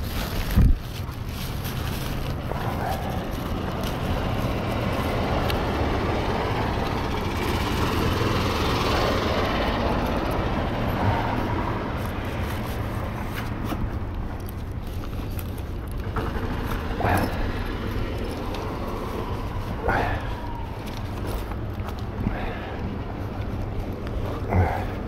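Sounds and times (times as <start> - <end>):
shopping cart rolling on asphalt: 0.0 - 25.0
vehicle noise: 0.0 - 25.0.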